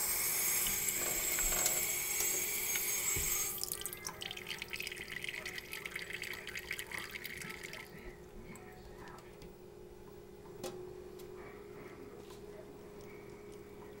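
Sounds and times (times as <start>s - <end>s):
faucet running into steel sink: 0.0s - 8.0s
water trickling onto cup: 3.5s - 8.0s.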